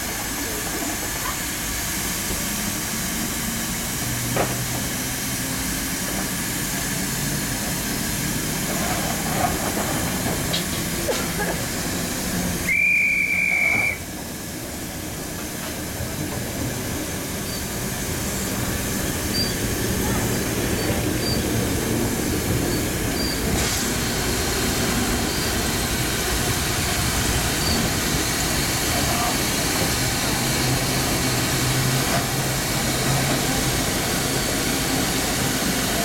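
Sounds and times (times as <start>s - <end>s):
steam hissing: 0.0s - 36.0s
steam locomotive whistle: 12.6s - 14.1s.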